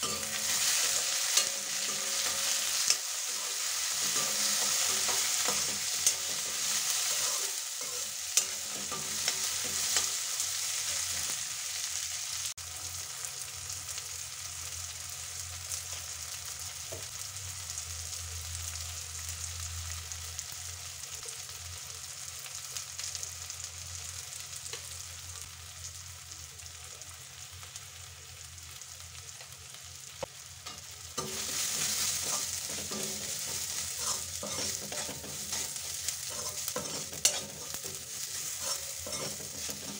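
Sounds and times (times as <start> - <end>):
metal spatula scraping pan: 0.0 - 10.2, 30.7 - 39.9
vegetables sizzling in hot oil: 0.0 - 39.9.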